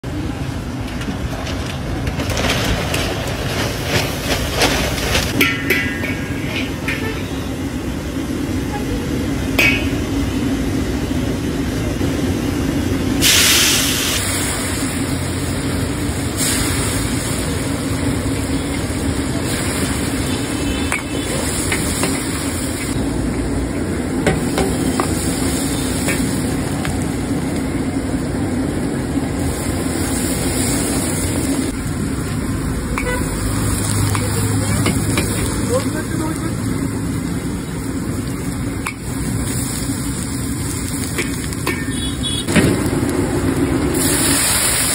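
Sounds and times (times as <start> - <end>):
frying sizzle: 0.0 - 44.9
gas burner roar: 0.0 - 44.9
ladle scraping a wok: 2.2 - 7.7
loud burst of hiss: 13.1 - 23.0, 43.9 - 44.9.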